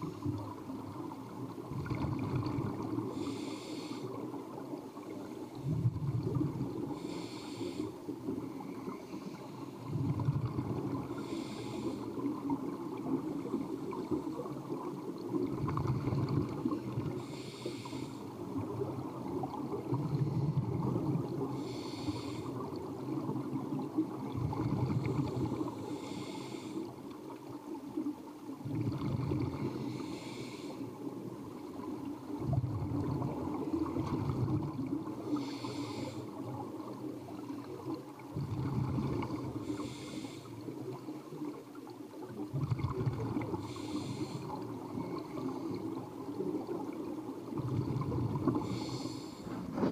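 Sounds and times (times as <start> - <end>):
bubbling rumble on exhale: 0.0 - 3.3, 5.5 - 7.1, 9.8 - 11.5, 12.2 - 17.3, 18.4 - 26.1, 28.6 - 30.2, 31.9 - 35.5, 36.3 - 41.6, 42.2 - 49.9
regulator hiss on inhale: 3.0 - 4.4, 6.6 - 10.0, 10.8 - 12.6, 16.6 - 18.6, 21.4 - 22.8, 24.7 - 27.5, 29.6 - 31.9, 35.1 - 36.8, 39.4 - 41.2, 43.6 - 46.1, 48.4 - 49.9.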